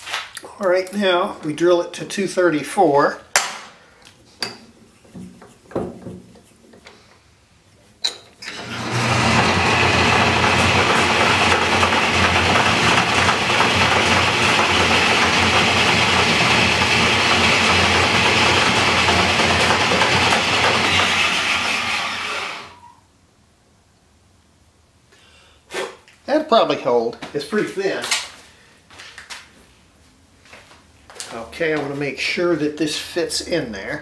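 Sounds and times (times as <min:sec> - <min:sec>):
metal lathe running: 0:08.4 - 0:22.8.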